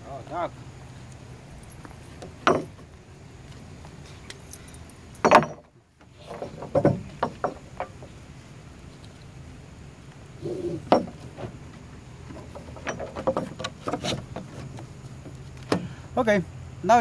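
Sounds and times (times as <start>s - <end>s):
metal hooks clinking on wood: 4.3s - 8.1s, 12.3s - 14.8s.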